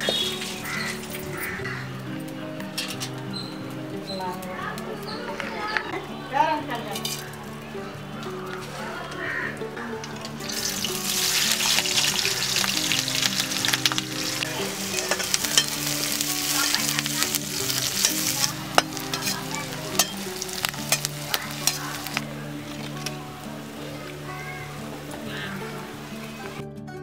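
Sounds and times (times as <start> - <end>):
onions sizzling in hot oil: 0.0 - 4.0, 8.5 - 26.6
skimmer scraping against pan: 2.8 - 3.2, 10.1 - 23.2.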